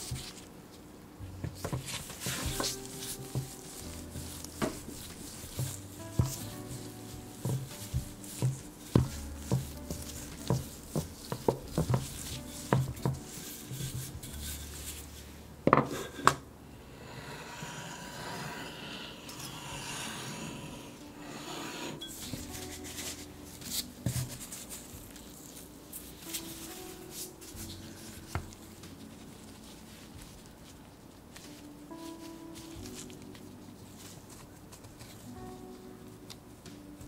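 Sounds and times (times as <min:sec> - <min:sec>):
rolling pin knocking on dough: 0:01.4 - 0:14.6
knife scraping through dough: 0:17.2 - 0:24.9.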